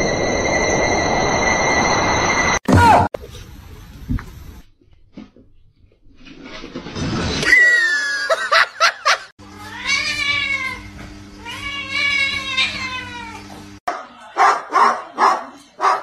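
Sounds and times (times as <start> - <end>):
cat meowing: 9.6 - 13.5.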